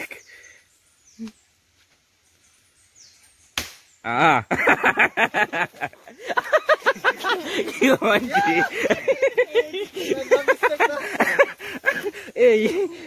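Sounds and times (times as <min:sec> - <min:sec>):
sharp crack: 0:03.5 - 0:04.0
man crying out: 0:07.8 - 0:09.0.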